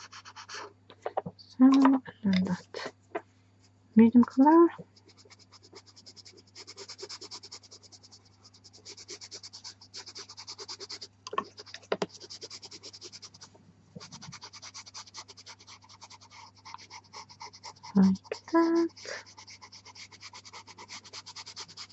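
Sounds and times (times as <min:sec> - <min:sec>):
pencil scratching on paper: 0:00.0 - 0:00.7, 0:05.0 - 0:21.9
steady low hum: 0:00.0 - 0:14.9.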